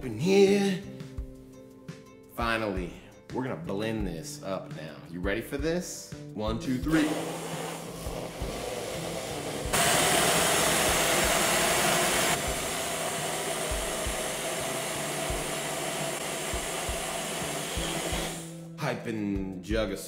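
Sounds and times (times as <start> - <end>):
blender motor running: 7.0 - 18.6.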